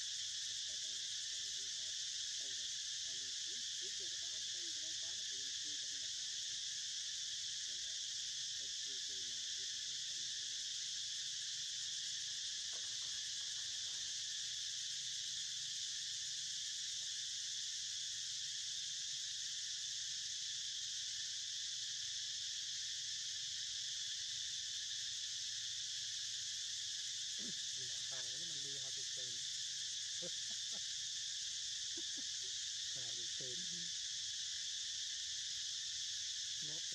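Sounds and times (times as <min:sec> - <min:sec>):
insects buzzing: 0:00.0 - 0:36.9.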